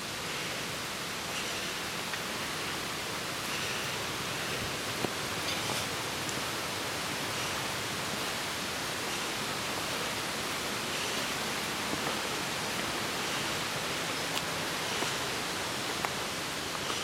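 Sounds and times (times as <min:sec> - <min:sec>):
steady rushing hiss: 0:00.0 - 0:17.0
footsteps on rocky leafy trail: 0:03.4 - 0:06.6, 0:09.1 - 0:17.0.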